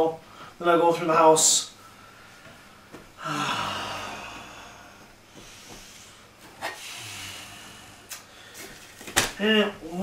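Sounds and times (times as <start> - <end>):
man sighing: 3.2 - 5.1.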